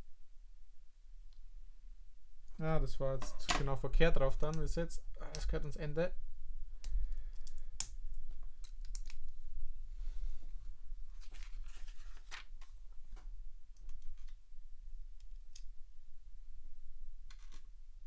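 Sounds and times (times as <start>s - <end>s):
low steady hum: 0.0s - 18.0s
plastic pieces clicking: 6.8s - 8.0s, 8.6s - 9.3s, 17.3s - 17.7s.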